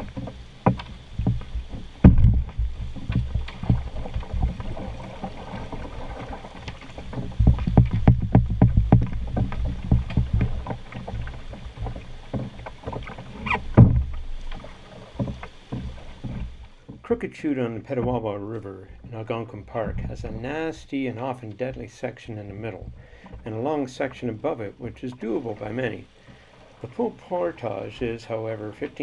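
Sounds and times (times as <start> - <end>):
pole knocking on rocks: 0.0 - 17.0
thumps on canoe hull: 0.0 - 17.2, 17.8 - 21.0
rushing river water: 0.0 - 29.0.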